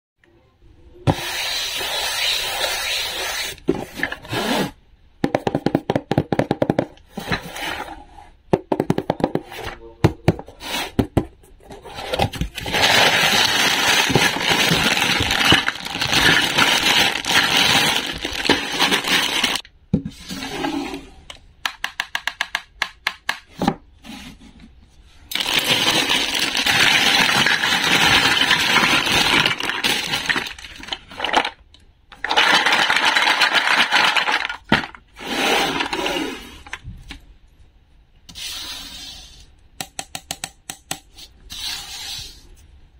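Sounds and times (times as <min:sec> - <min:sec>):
plastic toy pieces clattering: 0:12.4 - 0:19.6, 0:25.3 - 0:35.0
plastic bag crinkling: 0:12.5 - 0:19.6, 0:25.3 - 0:31.6.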